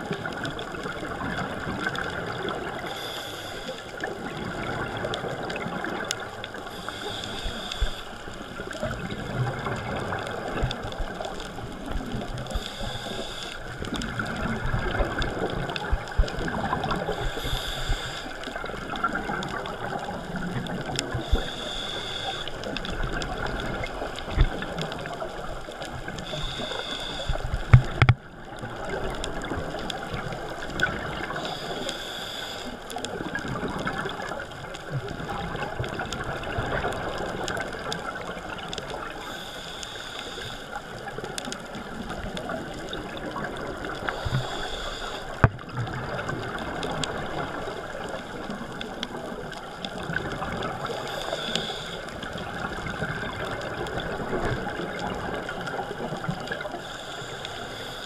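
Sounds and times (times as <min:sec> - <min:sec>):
muffled underwater bubbling: 0:00.0 - 0:58.0
scuba regulator breathing: 0:02.2 - 0:10.4, 0:11.4 - 0:20.0, 0:21.0 - 0:25.3, 0:26.1 - 0:28.1, 0:30.9 - 0:34.0, 0:39.0 - 0:48.0, 0:50.0 - 0:53.0, 0:54.8 - 0:58.0.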